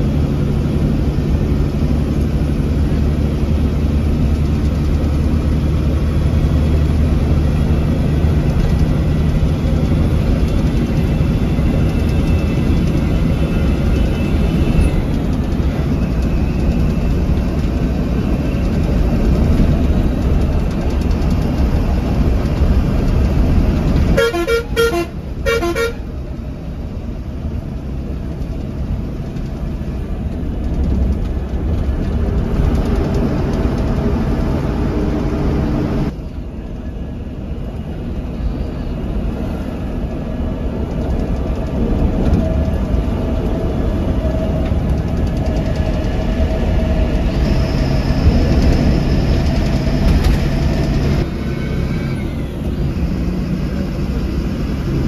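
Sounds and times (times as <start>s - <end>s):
bus engine and road rumble: 0.0s - 55.0s
horn short toots: 24.1s - 26.0s.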